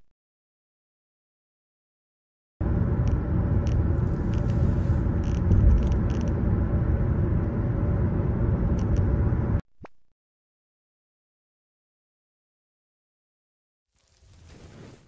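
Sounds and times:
car driving on highway rumble: 2.6 - 9.6.

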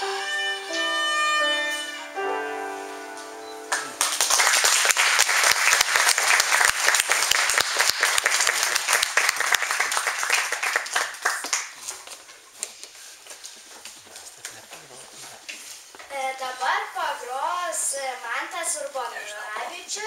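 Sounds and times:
violin and piano note: 0.0 - 4.0
audience applauding: 3.7 - 12.0.

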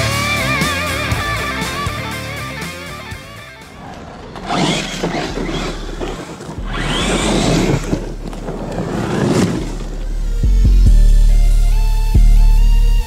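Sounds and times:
rc truck motor whine: 3.6 - 10.6
tyres rushing over leaves: 3.7 - 10.7.

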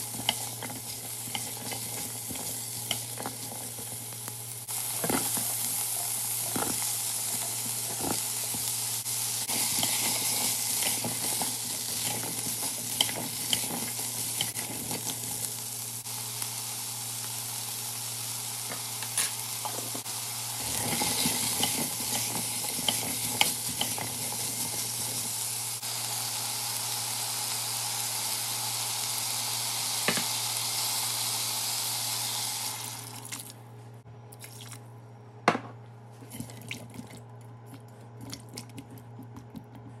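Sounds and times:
vegetables sizzling in oil: 0.0 - 33.4.

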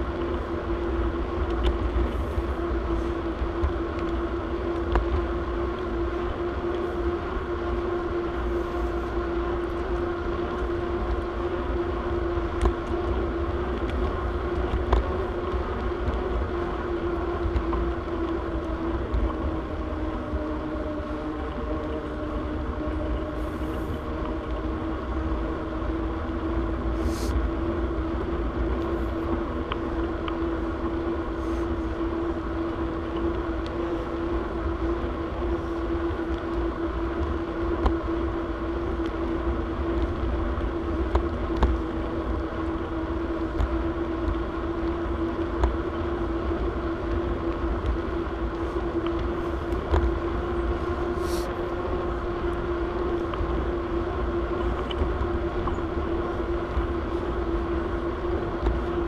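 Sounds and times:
bicycle rolling noise: 0.0 - 59.0
steady hum: 0.0 - 59.0
faint ticks: 1.4 - 6.0, 12.4 - 16.8, 28.7 - 32.2.

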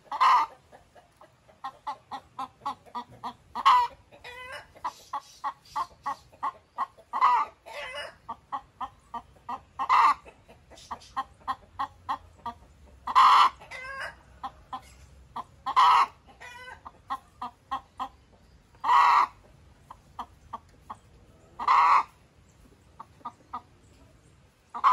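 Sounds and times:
hen clucking: 0.0 - 24.9.

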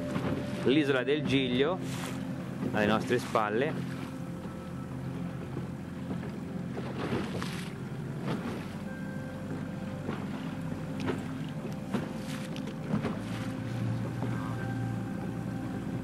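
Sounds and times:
boat motor running: 0.0 - 16.0
hull slapping through waves: 6.7 - 8.9, 10.0 - 14.7.

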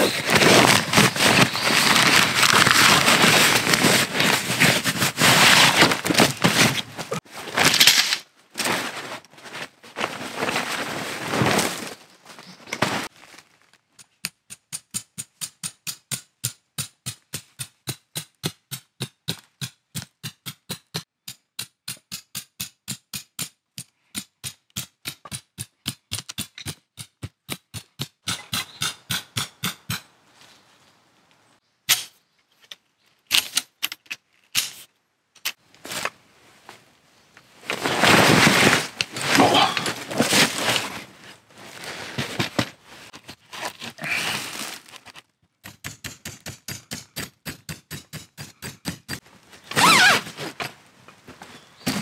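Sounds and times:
tent canvas rustling: 0.0 - 13.8, 37.6 - 45.2, 49.5 - 50.8.

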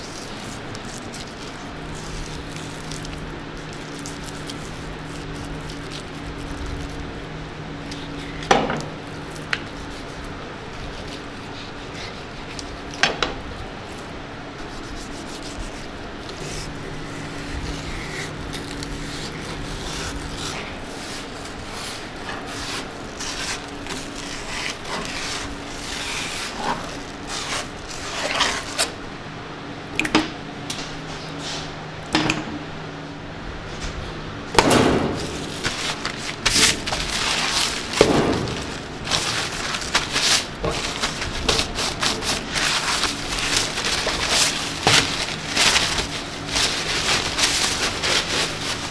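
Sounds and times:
knife scraping cutting board: 14.6 - 29.0
handling noises: 33.6 - 48.9.

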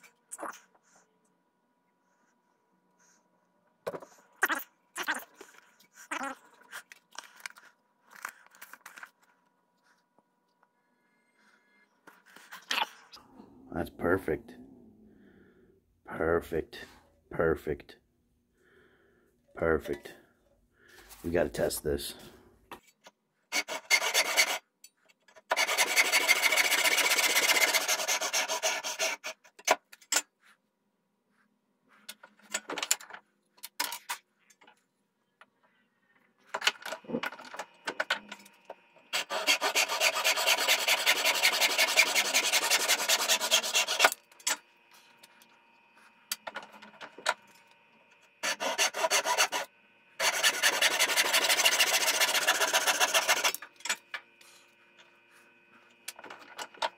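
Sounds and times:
hand saw cutting wood: 23.5 - 24.6, 25.5 - 29.6, 39.1 - 44.2, 48.4 - 53.6.

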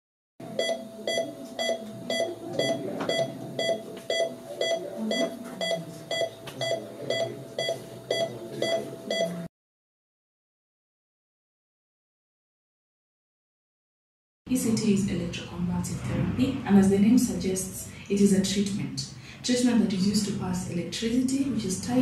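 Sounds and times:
patient monitor beeping: 0.4 - 9.5.

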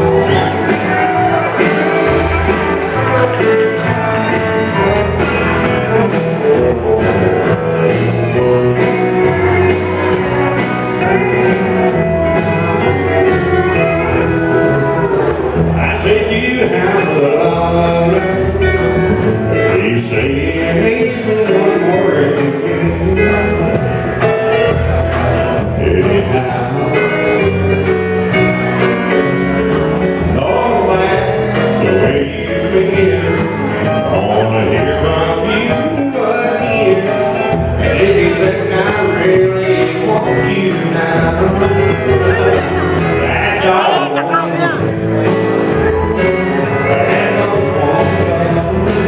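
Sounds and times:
live country band playing: 0.0 - 49.0
man singing into a microphone: 14.6 - 24.8, 25.4 - 27.9, 30.2 - 45.2, 46.0 - 49.0.

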